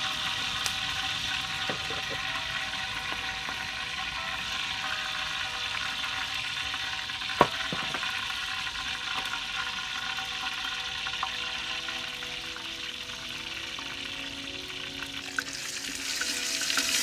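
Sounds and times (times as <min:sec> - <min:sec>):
fire crack: 0:00.0 - 0:03.8
pot sizzling on fire: 0:00.0 - 0:17.0.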